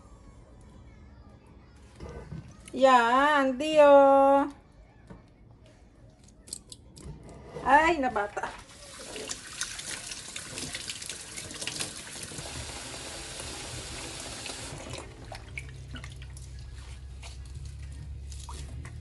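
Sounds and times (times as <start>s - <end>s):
low steady hum: 12.7s - 19.0s.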